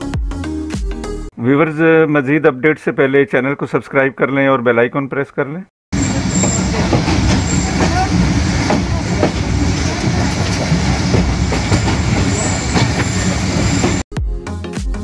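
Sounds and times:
train wheels rumbling and clattering: 6.0 - 14.1.

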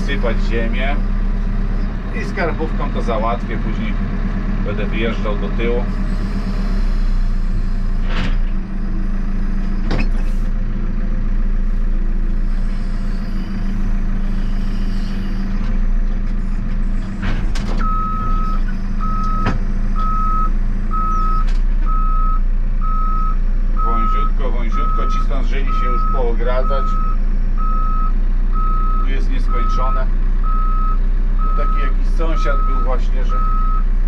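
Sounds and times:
diesel engine running: 0.0 - 34.0
reversing alarm beeping: 5.1 - 8.0, 11.8 - 17.2, 17.8 - 33.8.

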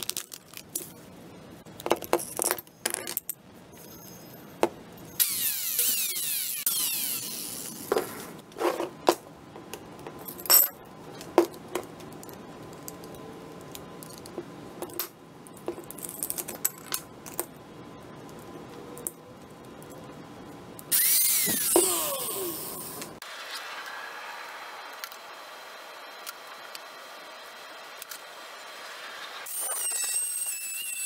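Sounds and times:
angle grinder whirring: 5.2 - 7.8, 20.9 - 23.0
metallic clicks and clinks: 12.1 - 17.6.

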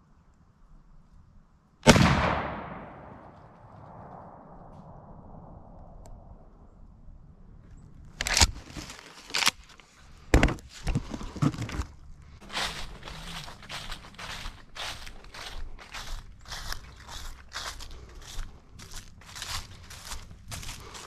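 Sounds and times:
gunshot tail: 1.8 - 6.0
footsteps crunching dry leaves: 12.4 - 21.0.

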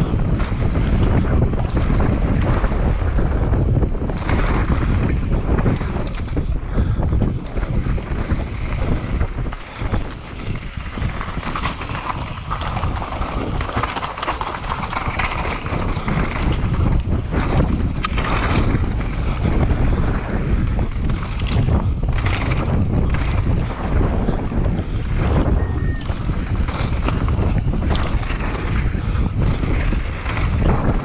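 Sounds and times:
bike knocking and rattling: 0.0 - 31.0
tyres on dry dirt: 0.0 - 31.0
wind rushing over microphone: 0.0 - 31.0.

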